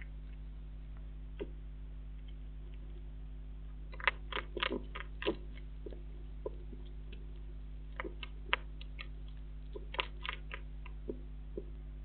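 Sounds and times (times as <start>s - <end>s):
steady low hum: 0.0s - 12.0s
hedgehog chewing clicks: 3.9s - 11.7s.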